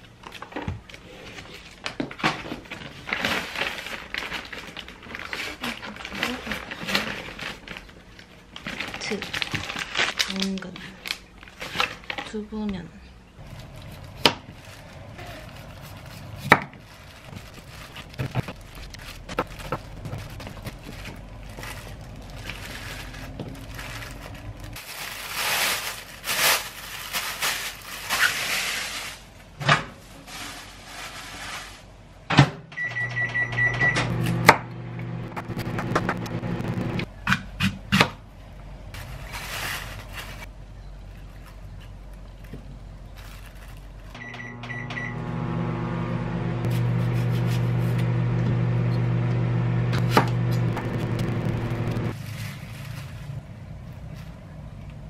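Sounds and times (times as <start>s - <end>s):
plastic bag rustling: 0.0s - 12.4s, 13.4s - 32.0s, 39.0s - 44.2s, 50.7s - 54.7s
microwave oven humming: 32.5s - 37.1s, 44.1s - 52.1s
microwave oven beeps: 32.7s - 34.5s, 44.2s - 46.4s, 48.7s - 49.4s.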